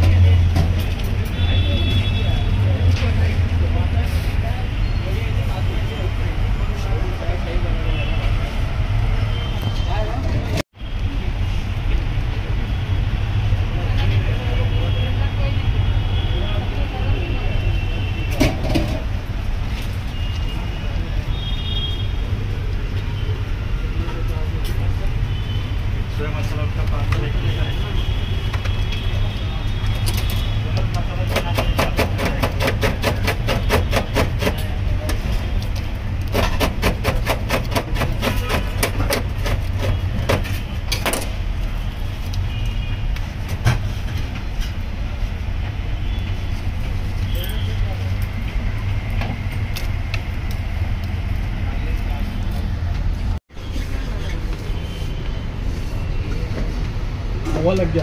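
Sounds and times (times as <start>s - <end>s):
street traffic rumble: 0.0s - 58.0s.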